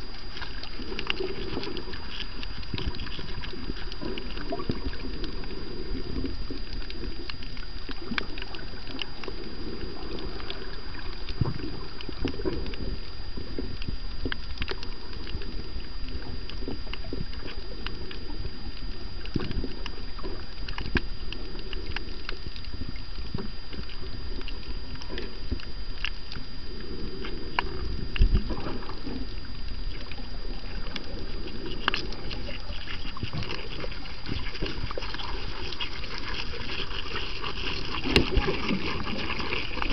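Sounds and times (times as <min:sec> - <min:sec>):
crackle of underwater clicks: 0:00.0 - 0:39.9.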